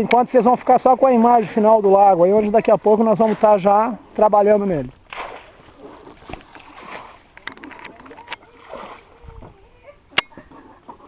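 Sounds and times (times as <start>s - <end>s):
faint voices: 7.4s - 11.0s.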